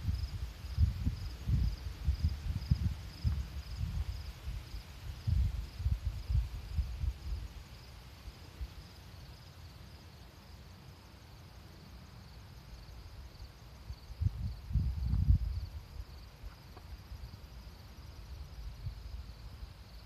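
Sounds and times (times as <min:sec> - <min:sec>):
wind buffeting microphone: 0:00.0 - 0:07.5, 0:13.9 - 0:16.2
insects chirping: 0:00.0 - 0:20.0.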